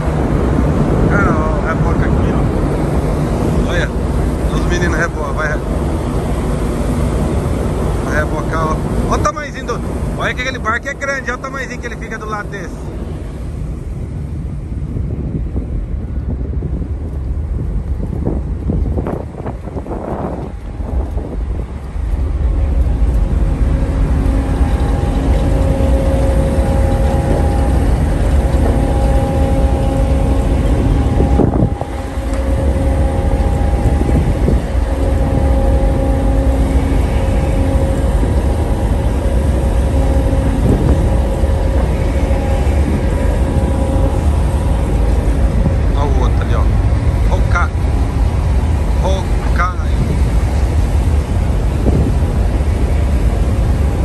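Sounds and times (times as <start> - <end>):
ship engines rumbling: 0.0 - 54.0
wind buffeting microphone: 0.0 - 54.0.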